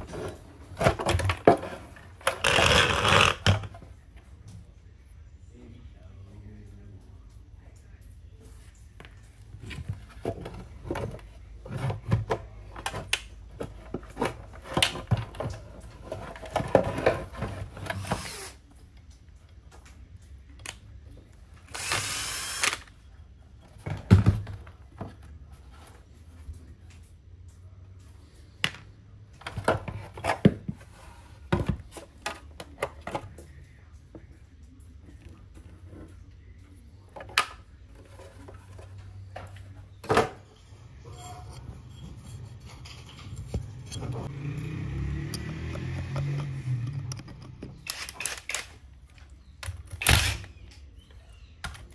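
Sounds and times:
tools and small parts clattering: 0.0 - 3.8, 9.6 - 18.2, 37.1 - 51.9
cordless drill driving screw: 21.7 - 22.8.

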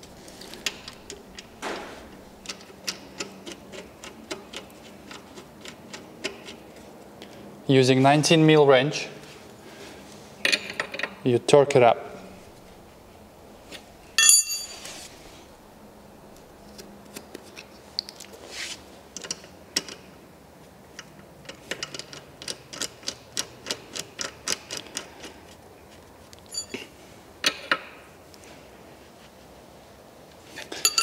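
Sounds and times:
spanner clinking on concrete: 14.2 - 14.9, 26.4 - 27.8, 30.7 - 31.0.

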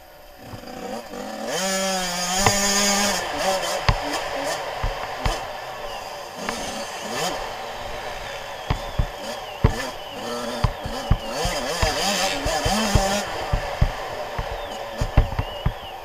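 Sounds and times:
motorbike engine revving: 0.0 - 16.0
sharp knocks: 3.8 - 5.5, 10.6 - 15.8.

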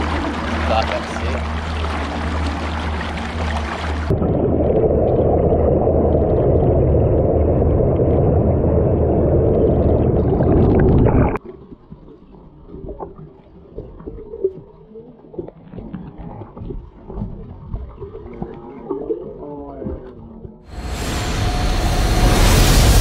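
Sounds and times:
boat engine humming: 0.0 - 4.2
underwater rush of water and bubbles: 0.0 - 19.3, 20.7 - 23.0
water splashing at hull: 0.0 - 21.4.

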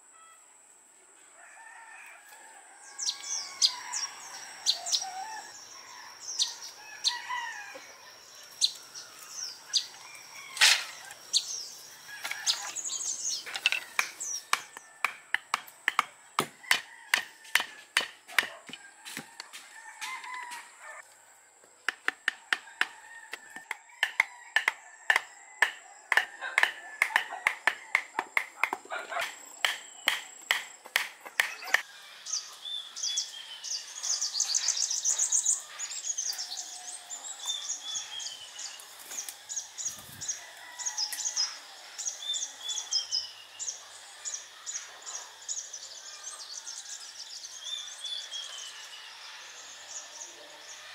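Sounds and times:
bamboo being hammered: 13.5 - 19.3, 21.8 - 31.8.

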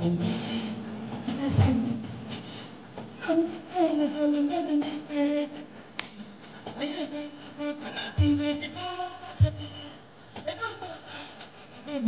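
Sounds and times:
person singing through loudspeaker: 6.8 - 10.0.

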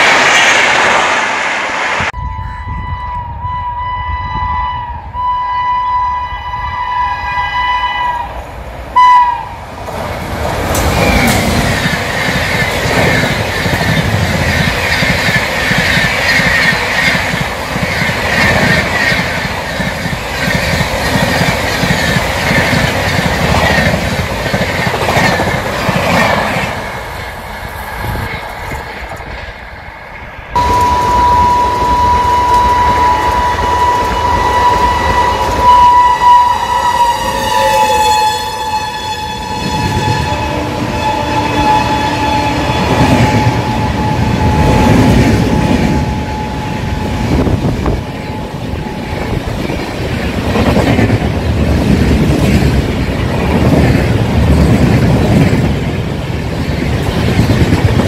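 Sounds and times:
locomotive horn: 2.2 - 8.4, 9.0 - 9.6, 30.6 - 49.5
long shrill train horn: 2.2 - 8.4, 9.0 - 9.6, 30.6 - 49.5.

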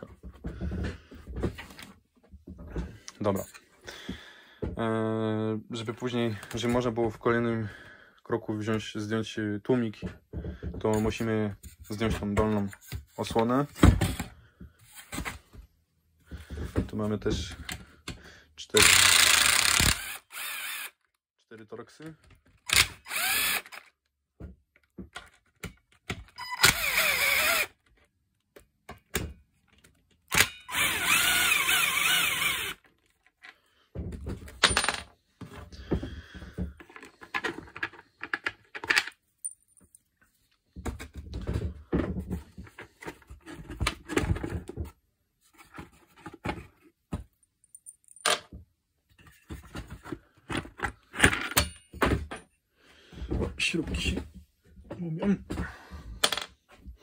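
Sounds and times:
cordless drill running: 18.8 - 21.1, 22.7 - 23.9, 26.4 - 27.8, 30.7 - 32.8
loose screws and plastic clinking: 36.8 - 40.1.

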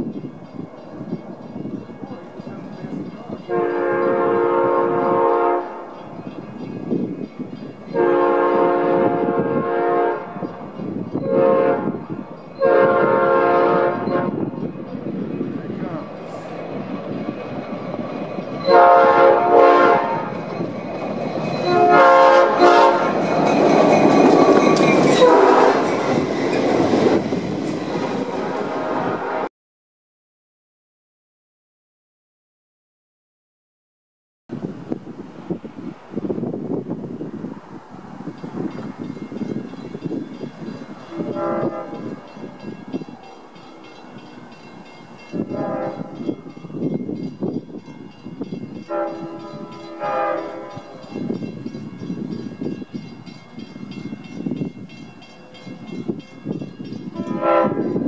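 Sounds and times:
locomotive engine passing: 0.0 - 29.5, 34.6 - 58.0
locomotive horn blasts: 3.4 - 6.0, 7.9 - 14.6, 18.6 - 20.5, 21.6 - 23.3, 25.1 - 26.0, 28.4 - 29.5, 41.0 - 42.7, 45.3 - 46.5, 48.8 - 51.2, 57.1 - 58.0
freight cars clattering on rails: 14.4 - 19.0, 20.2 - 28.7.

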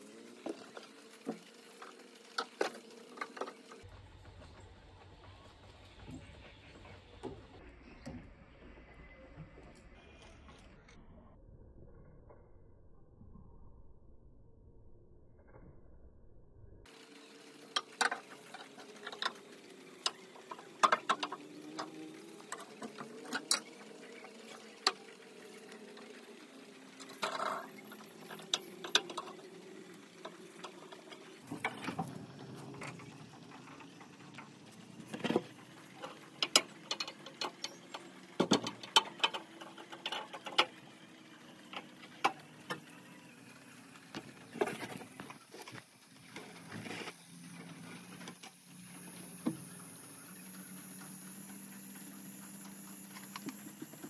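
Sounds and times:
small tools clicking and scraping: 0.3 - 3.9, 17.0 - 43.0
steady high hiss: 16.9 - 54.0.

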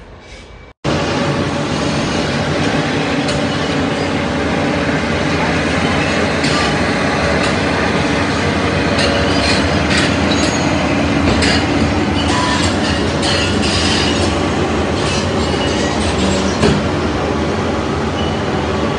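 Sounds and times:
steel tracks rattling and squealing: 0.0 - 18.9.

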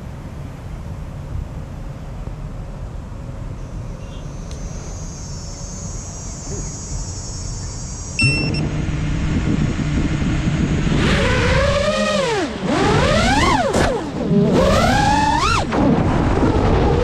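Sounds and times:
low outdoor rumble: 0.0 - 17.0
quadcopter electric motors humming: 4.4 - 17.0.

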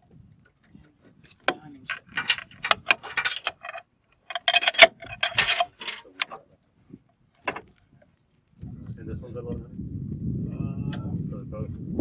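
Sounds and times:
metal clicks of gun action: 1.4 - 6.4.

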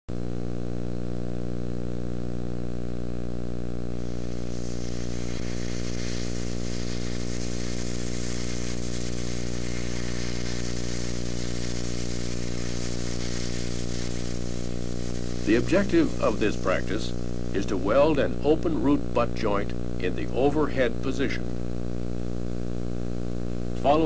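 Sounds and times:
low droning hum: 3.8 - 20.0
hiss: 4.0 - 18.2.

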